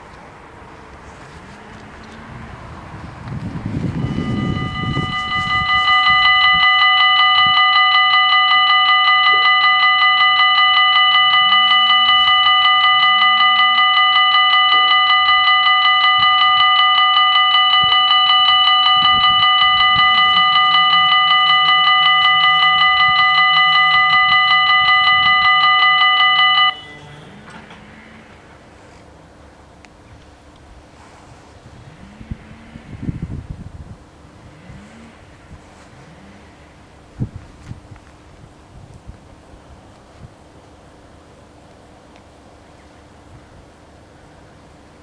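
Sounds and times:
level crossing warning bells: 0:01.1 - 0:30.6.

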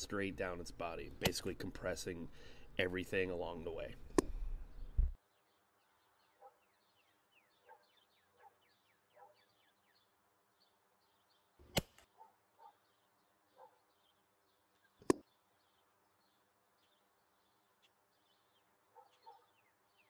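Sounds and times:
faint birdsong: 0:00.0 - 0:20.0.

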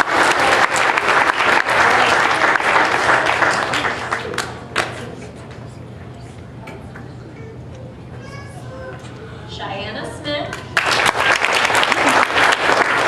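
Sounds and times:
audience applauding: 0:00.0 - 0:05.2, 0:10.6 - 0:13.0.

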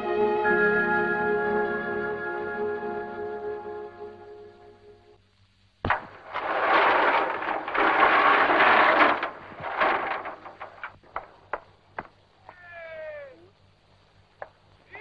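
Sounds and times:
loud rush of noise: 0:06.1 - 0:10.9.

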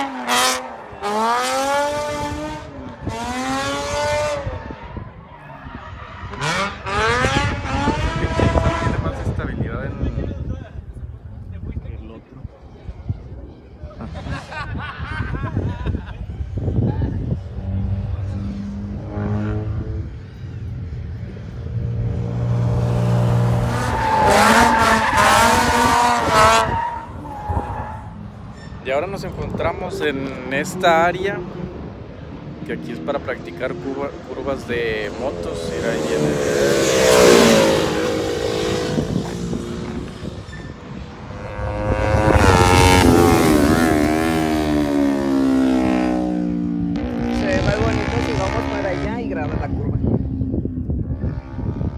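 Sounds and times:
car engine revving: 0:06.3 - 0:09.5, 0:17.5 - 0:20.3, 0:21.3 - 0:28.5, 0:30.2 - 0:49.7.

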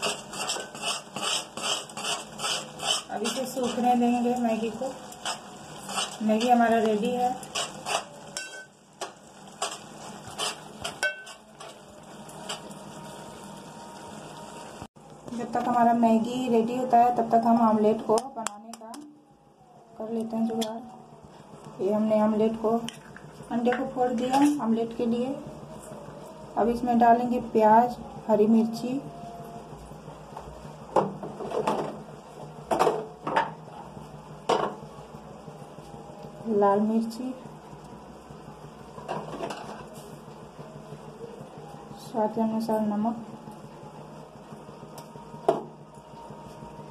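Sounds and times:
ringing clank: 0:08.4 - 0:08.7.

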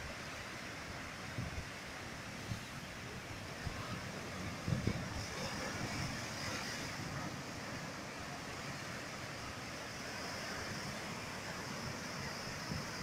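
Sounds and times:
ocean surf breaking on rocks: 0:00.0 - 0:13.0
wind buffeting microphone: 0:03.6 - 0:07.6.

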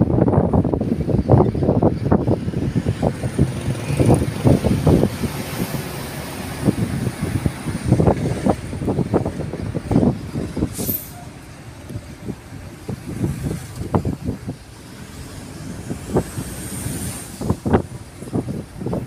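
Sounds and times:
car road rumble: 0:00.0 - 0:19.0
brief hiss: 0:10.7 - 0:11.3.

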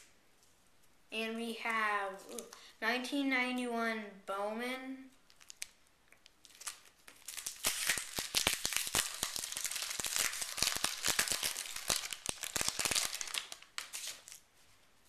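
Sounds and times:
wrapper crinkling and tearing: 0:05.2 - 0:14.5.

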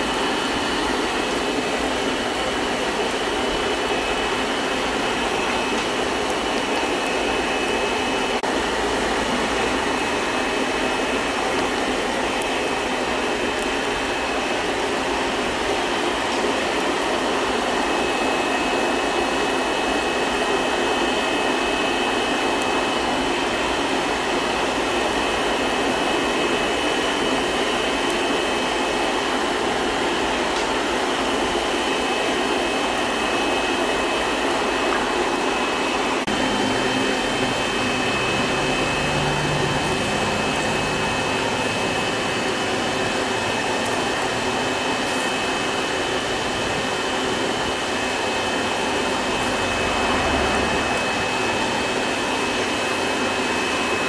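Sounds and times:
forge air blower rushing: 0:00.0 - 0:54.0.

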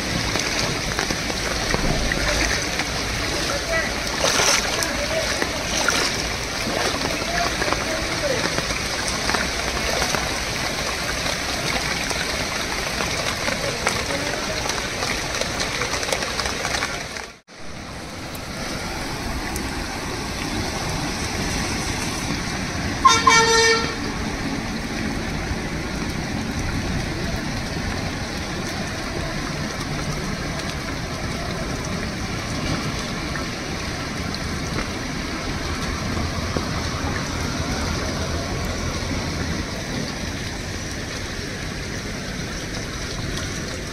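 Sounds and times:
fast-flowing river: 0:00.0 - 0:43.9
heavy rain: 0:00.0 - 0:43.9
vehicle horn honk: 0:23.0 - 0:24.1.

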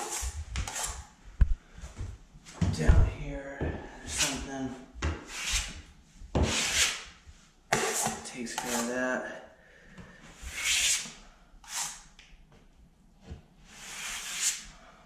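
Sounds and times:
drywall knife scraping compound: 0:00.0 - 0:01.1, 0:04.0 - 0:04.5, 0:05.1 - 0:07.1, 0:07.7 - 0:09.1, 0:10.4 - 0:12.1, 0:13.7 - 0:14.8.

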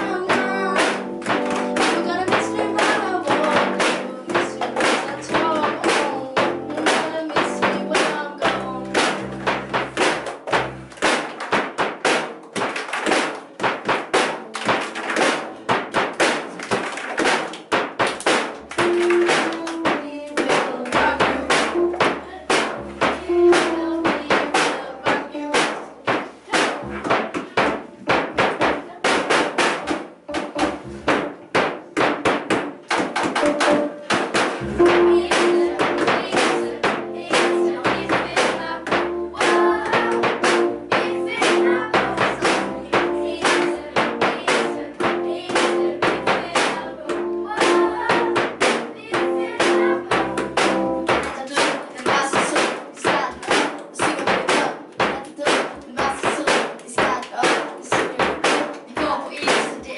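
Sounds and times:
sharp percussive taps: 0:00.0 - 0:59.7
keyboard held notes: 0:18.6 - 0:20.0, 0:33.4 - 0:51.2.

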